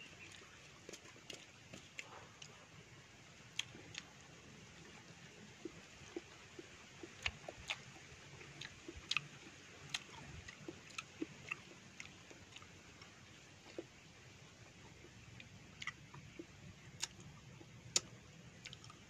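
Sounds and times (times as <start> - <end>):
person chewing: 0.2 - 2.6, 3.6 - 4.2, 6.0 - 14.0, 15.0 - 19.0.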